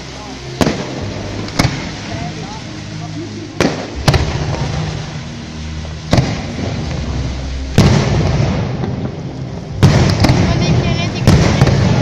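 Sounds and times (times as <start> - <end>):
firework stars crackling: 0.0 - 12.0
firework shells booming: 0.6 - 2.1, 3.6 - 5.1, 6.1 - 12.0.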